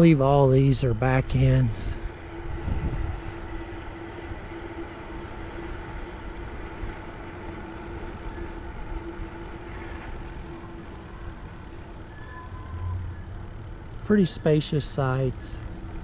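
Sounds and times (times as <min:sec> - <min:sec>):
bicycle rolling rumble: 0:00.0 - 0:16.0
wind rushing over microphone: 0:01.7 - 0:03.7.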